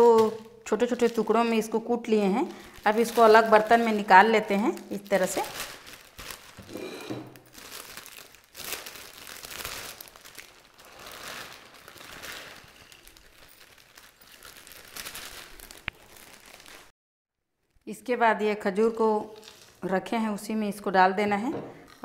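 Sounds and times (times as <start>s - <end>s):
plastic bag crinkling: 0.0s - 16.9s, 19.3s - 19.9s.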